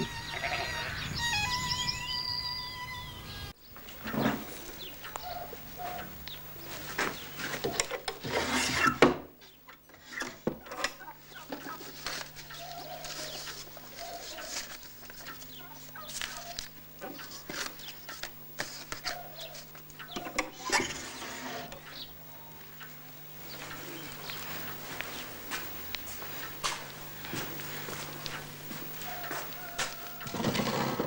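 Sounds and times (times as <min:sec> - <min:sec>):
flock of small birds calling: 0:00.0 - 0:03.6, 0:04.4 - 0:07.6, 0:10.7 - 0:30.4
paper photographs rustling: 0:11.3 - 0:19.9.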